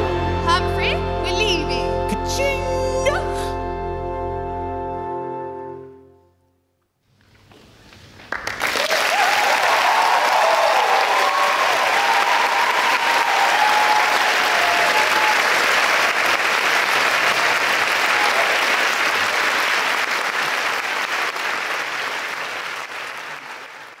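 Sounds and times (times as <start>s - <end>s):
audience applauding: 8.2s - 24.0s.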